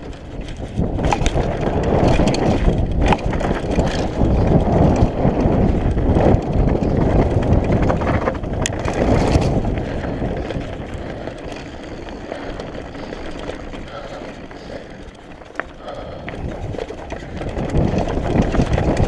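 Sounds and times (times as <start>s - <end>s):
bike knocking and rattling: 0.0s - 19.0s
bike tyres rolling on dirt: 0.0s - 19.0s
wind noise on microphone: 0.0s - 19.0s.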